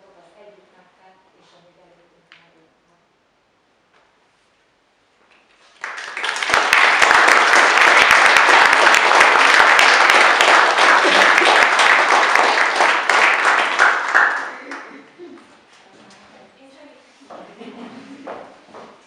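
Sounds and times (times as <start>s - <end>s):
crowd applauding: 5.6s - 15.1s.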